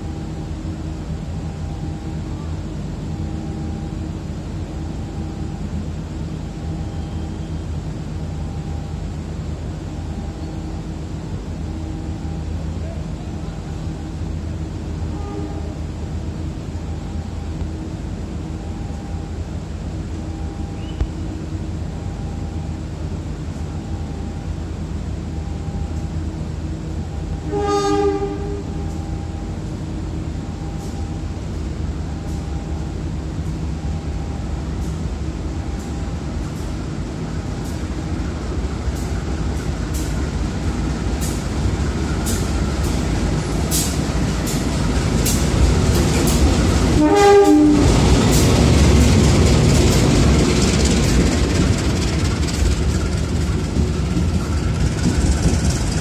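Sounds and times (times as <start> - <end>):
train horn blasts: 15.0 - 15.9, 27.3 - 29.6, 46.9 - 48.0
wheels clicking over rail joints: 48.1 - 56.0.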